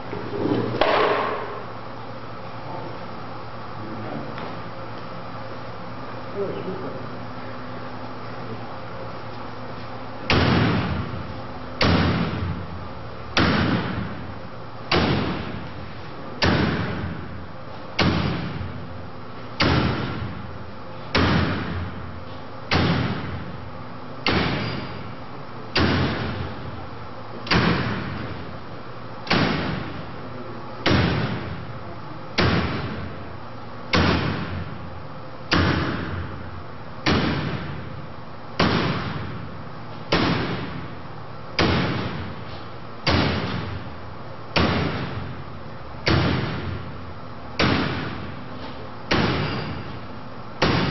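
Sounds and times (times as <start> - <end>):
axe striking metal wire mesh: 14.9 - 15.5, 22.7 - 23.3, 24.2 - 25.1, 40.1 - 40.8, 41.6 - 42.3, 43.1 - 43.8, 46.0 - 46.7, 47.6 - 48.2, 49.1 - 50.0, 50.6 - 50.9.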